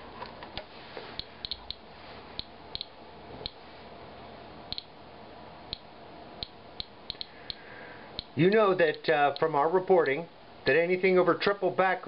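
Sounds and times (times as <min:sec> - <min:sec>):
geiger counter clicking: 0:01.2 - 0:01.8, 0:02.4 - 0:03.6, 0:04.7 - 0:04.9, 0:05.7 - 0:07.6, 0:08.2 - 0:10.2.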